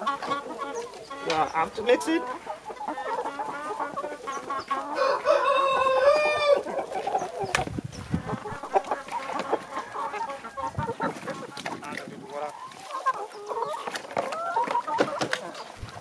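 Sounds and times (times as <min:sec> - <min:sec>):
chickens clucking: 0:00.0 - 0:16.0
rooster crowing: 0:04.9 - 0:06.6.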